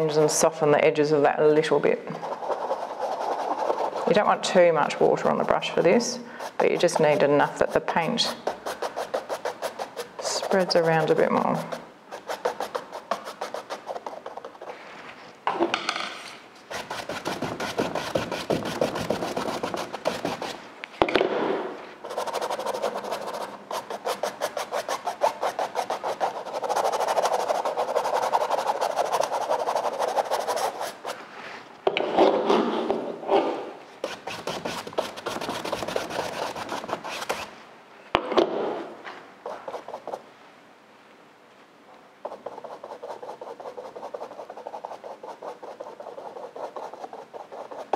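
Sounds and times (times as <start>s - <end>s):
paintbrush scrubbing on canvas: 1.6s - 15.2s, 16.7s - 20.7s, 22.0s - 31.6s, 34.0s - 37.5s, 39.4s - 40.2s, 42.3s - 47.9s.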